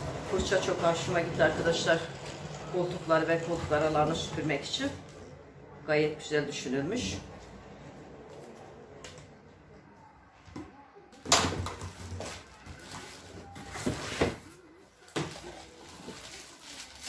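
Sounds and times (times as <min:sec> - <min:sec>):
cardboard and plastic rustling: 0:11.3 - 0:17.0.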